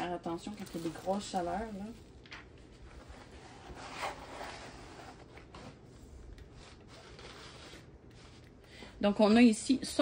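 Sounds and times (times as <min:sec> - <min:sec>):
plastic film rustling: 0:00.0 - 0:05.9.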